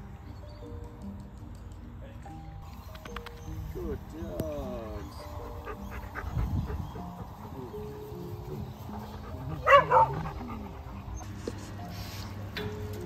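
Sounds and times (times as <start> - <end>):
dog barking: 9.6 - 10.6.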